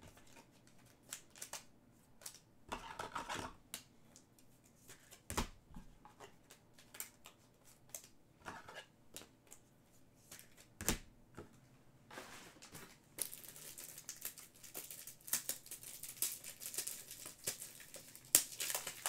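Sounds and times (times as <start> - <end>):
cards rustling: 12.6 - 19.0.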